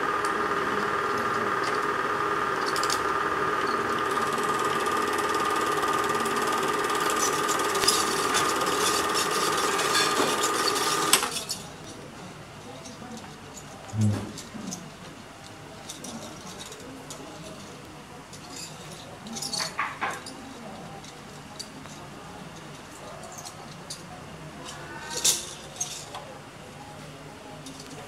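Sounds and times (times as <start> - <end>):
film projector whirring: 0.0 - 11.8.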